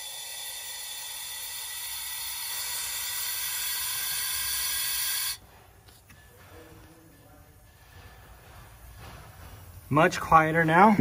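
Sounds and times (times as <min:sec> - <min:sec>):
compressed air hissing through valve: 0:00.0 - 0:05.6.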